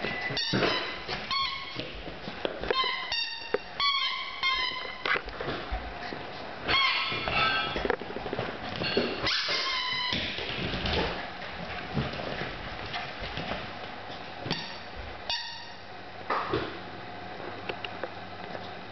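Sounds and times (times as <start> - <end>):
squeaky toy squeaks: 0.4 - 1.7, 2.7 - 5.1, 6.7 - 7.6
ball and paws knocking on wooden floor: 7.1 - 13.7.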